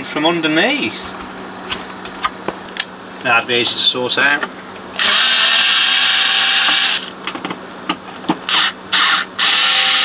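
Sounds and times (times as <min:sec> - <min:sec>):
electric screwdriver running: 0:05.0 - 0:07.1, 0:08.5 - 0:10.0.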